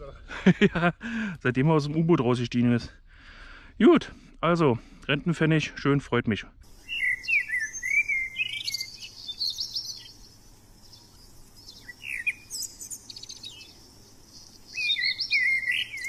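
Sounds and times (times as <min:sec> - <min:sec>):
songbirds chirping: 0:06.3 - 0:16.0.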